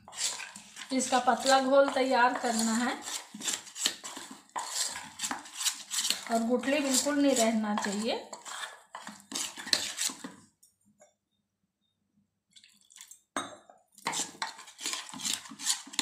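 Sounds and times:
metal spoon scraping steel bowl: 0.0s - 10.4s, 14.0s - 16.0s.

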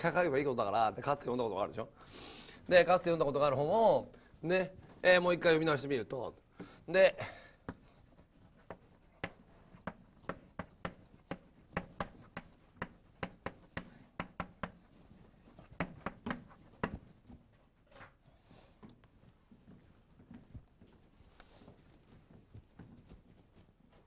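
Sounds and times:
chalk tapping and scraping on blackboard: 7.6s - 17.4s.

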